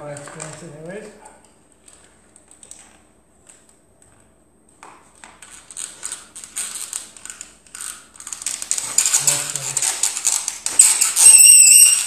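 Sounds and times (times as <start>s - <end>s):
bow drill squeaking scrape: 10.8s - 12.0s.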